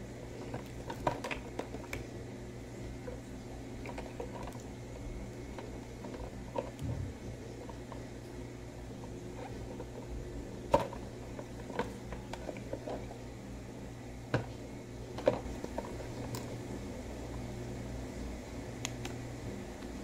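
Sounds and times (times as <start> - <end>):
low hum: 6.8 - 7.7.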